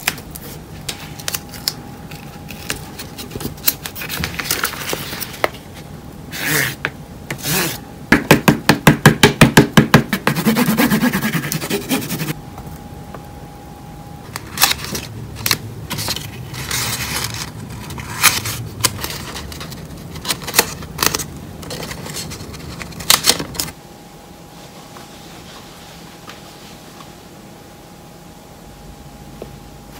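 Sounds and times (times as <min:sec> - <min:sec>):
crayon scribbling on paper: 0:10.1 - 0:12.4.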